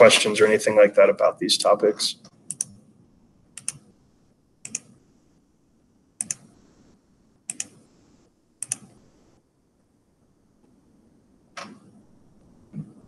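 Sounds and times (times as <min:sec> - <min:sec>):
computer keys clicking: 0:02.3 - 0:02.8, 0:03.6 - 0:03.9, 0:04.6 - 0:05.0, 0:06.2 - 0:06.5, 0:07.5 - 0:07.8, 0:08.6 - 0:09.0.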